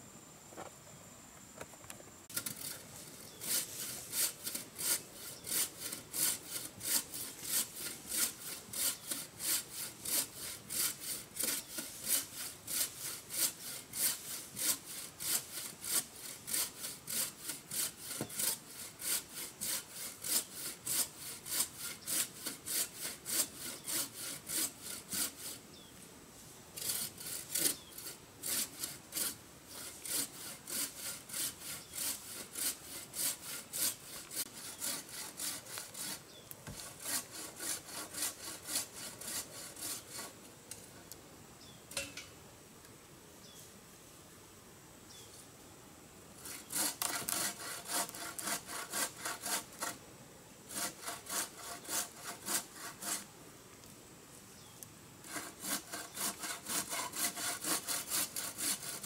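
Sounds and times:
hand saw cutting wood: 0:02.3 - 0:25.6, 0:26.8 - 0:40.4, 0:46.4 - 0:50.0, 0:50.7 - 0:53.3, 0:55.2 - 0:59.0.

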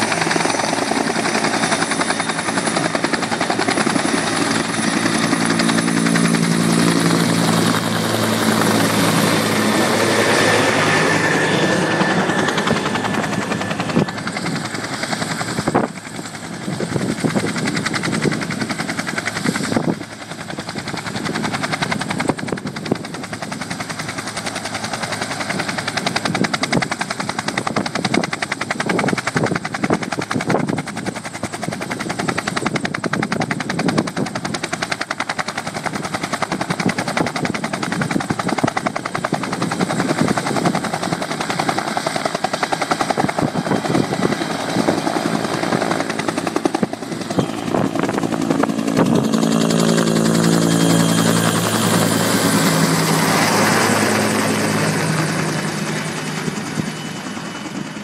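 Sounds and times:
turbine whine: 0:00.0 - 0:23.0, 0:38.7 - 0:58.0
helicopter rotor beating: 0:00.0 - 0:58.0.

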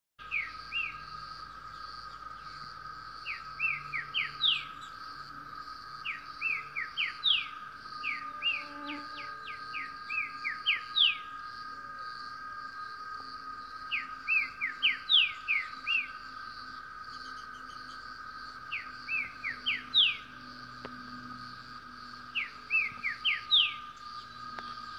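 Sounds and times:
bird singing whistled notes: 0:00.2 - 0:02.6, 0:03.2 - 0:05.0, 0:06.0 - 0:11.4, 0:13.8 - 0:18.0, 0:18.7 - 0:20.5, 0:22.3 - 0:24.9
insect drone: 0:00.2 - 0:24.9.

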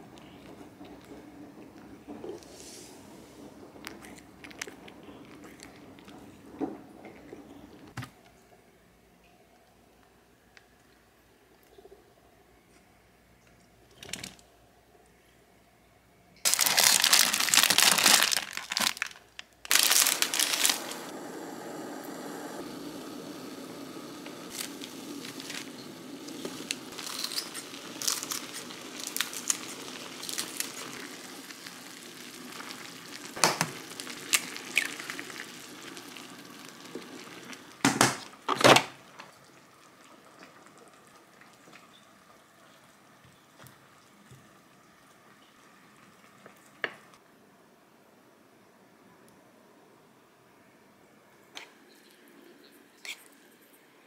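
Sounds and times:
pot bubbling: 0:00.0 - 0:08.0, 0:16.4 - 0:47.2
packet crinkling and tearing: 0:16.4 - 0:21.1, 0:24.5 - 0:37.7.

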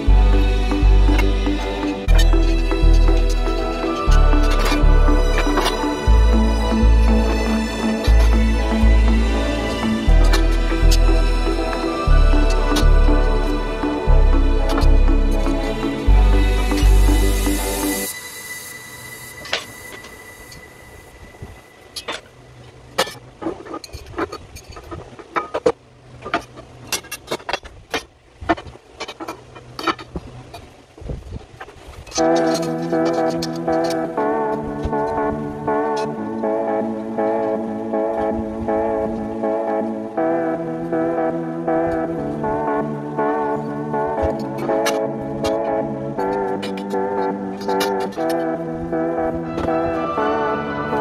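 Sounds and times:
deep bass beat: 0:00.0 - 0:18.0
soft higher melody: 0:00.0 - 0:22.8, 0:32.2 - 0:51.0.

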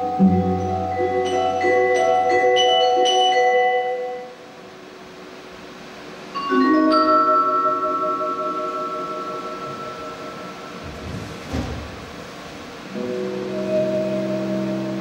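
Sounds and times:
mallet percussion ringing notes: 0:00.0 - 0:04.5, 0:06.3 - 0:10.8.

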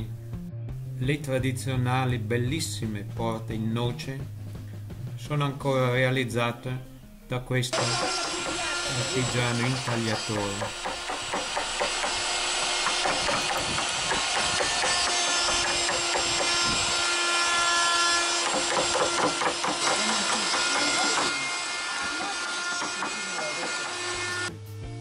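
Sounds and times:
mallets tapping chisels into wood: 0:07.8 - 0:16.6, 0:18.3 - 0:21.4.

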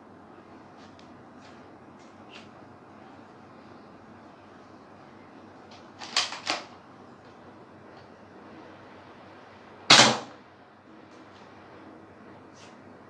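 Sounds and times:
toy pistol shot: 0:09.9 - 0:10.3.

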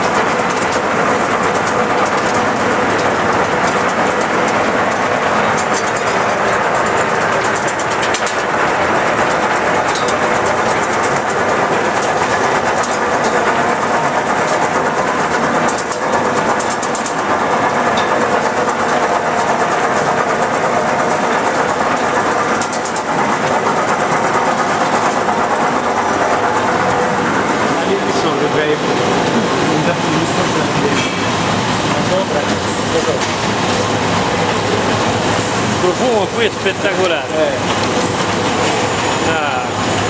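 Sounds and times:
mill machinery din: 0:00.0 - 0:40.0.

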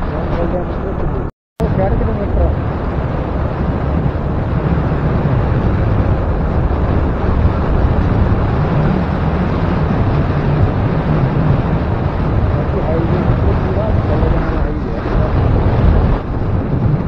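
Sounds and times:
wind rushing on microphone: 0:00.0 - 0:17.0.

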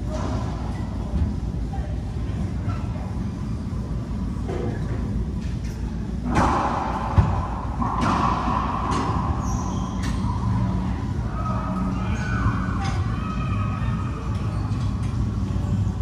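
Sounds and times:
racquetball hits echoing: 0:06.2 - 0:09.7.

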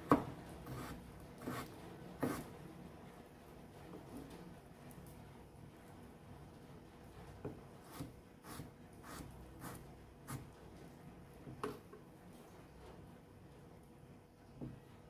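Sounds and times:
knife chopping on wooden board: 0:00.0 - 0:02.4.

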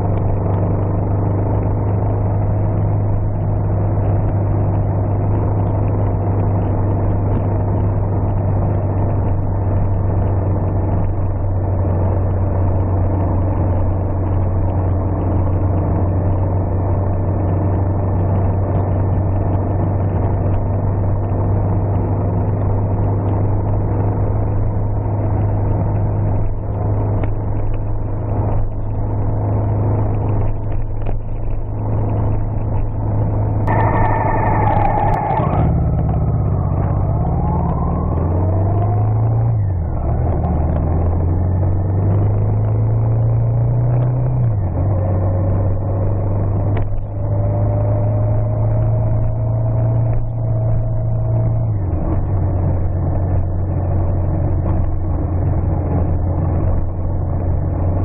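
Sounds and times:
car engine humming: 0:00.0 - 0:58.0.

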